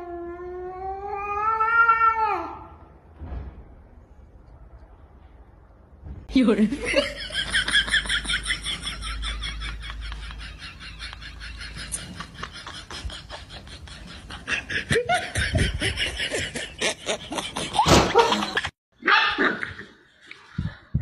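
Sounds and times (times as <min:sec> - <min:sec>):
people laughing: 0:06.7 - 0:18.7.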